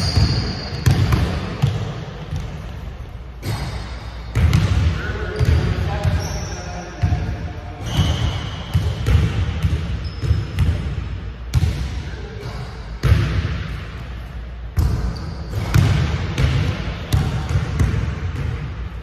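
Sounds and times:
sneaker squeaks: 0.0 - 2.6, 3.4 - 10.7, 14.8 - 15.8.

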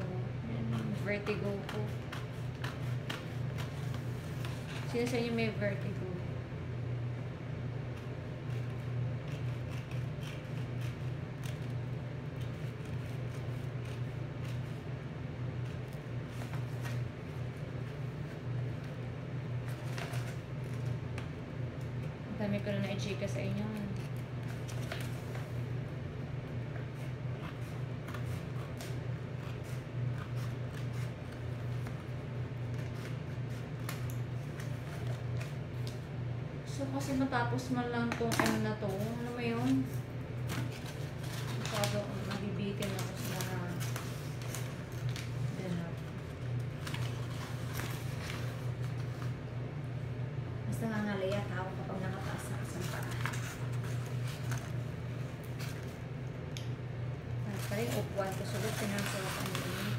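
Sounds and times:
exhaust fan humming: 0.0 - 59.9
film crinkling: 7.9 - 36.2, 37.0 - 49.6, 51.2 - 59.9
scissors cutting metallic paper: 9.2 - 11.7.

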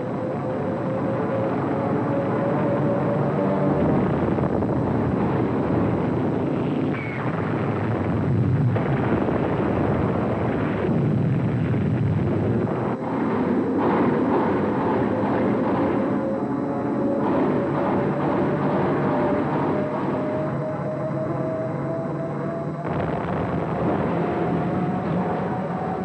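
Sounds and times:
warplane engines: 0.0 - 26.0
anti-aircraft gunfire: 6.5 - 16.2, 22.8 - 25.5
explosions: 6.6 - 14.6, 22.8 - 25.3.

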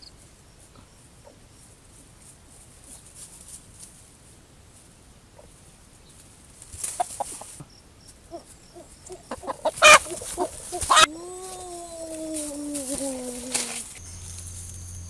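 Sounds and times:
rooster clucking: 6.9 - 7.6, 8.3 - 14.0
rooster squawks: 8.3 - 12.1
rooster distress call: 9.3 - 14.3.

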